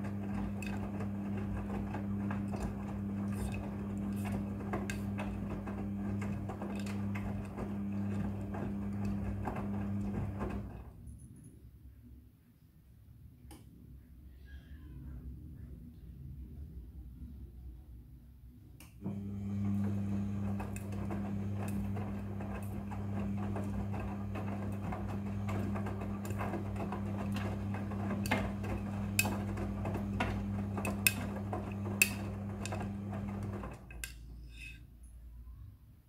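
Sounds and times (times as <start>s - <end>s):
laundry sloshing in drum: 0.0s - 10.8s, 19.5s - 33.8s
washing machine motor hum: 0.0s - 11.0s, 19.0s - 34.2s.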